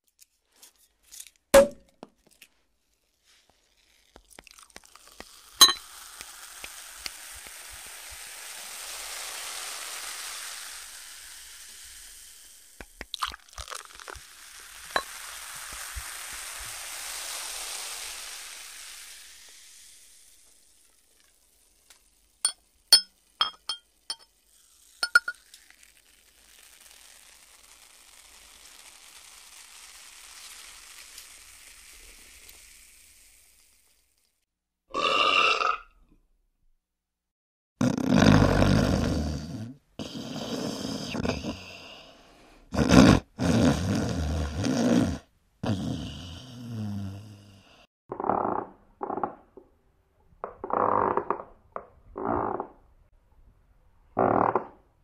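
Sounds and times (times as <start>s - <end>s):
cork pop: 1.6s - 2.0s, 4.5s - 7.2s, 12.8s - 14.2s, 22.4s - 24.2s, 25.0s - 25.7s
champagne fizzing: 3.8s - 34.2s
glasses clinking: 5.6s - 5.8s, 22.5s - 24.2s, 25.0s - 25.4s.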